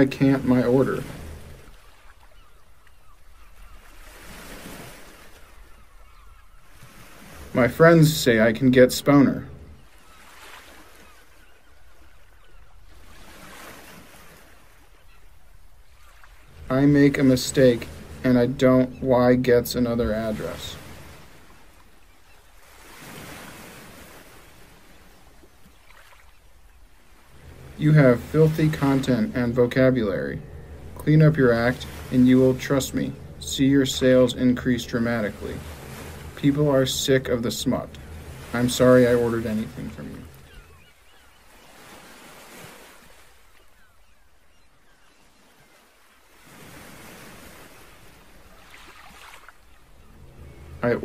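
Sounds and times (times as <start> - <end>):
faint outdoor ambience: 14.8 - 45.6, 46.4 - 51.0.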